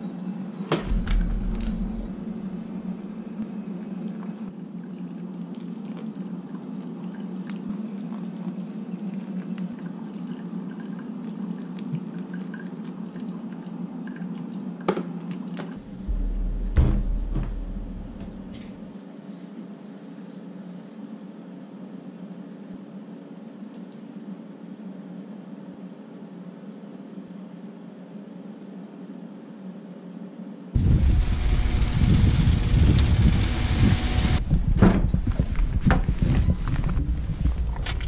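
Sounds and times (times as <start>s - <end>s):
steady low hum: 0.0s - 6.2s, 15.8s - 22.4s, 30.8s - 38.0s
clicks and knocks: 0.7s - 3.2s, 15.8s - 18.8s
low thumps: 0.7s - 3.8s, 15.8s - 18.9s, 30.8s - 38.0s.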